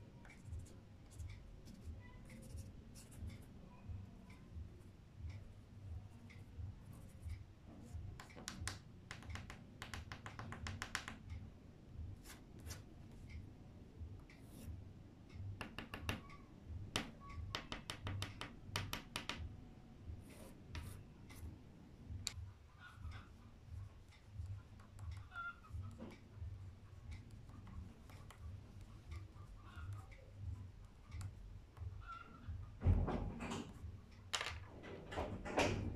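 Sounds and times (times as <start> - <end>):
pastel stick tapping on paper: 8.1 - 11.3, 15.5 - 19.5, 20.7 - 21.0, 27.2 - 30.1.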